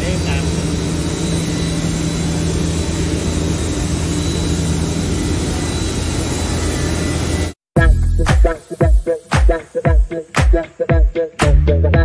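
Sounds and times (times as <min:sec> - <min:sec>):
factory machinery drone: 0:00.0 - 0:07.6
faint high whine: 0:00.0 - 0:07.6.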